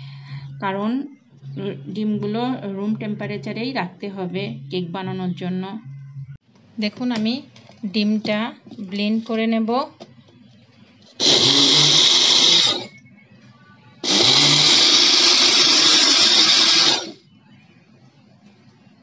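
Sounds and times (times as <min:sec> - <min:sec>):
electric blender running: 0:11.2 - 0:13.0, 0:14.0 - 0:17.2.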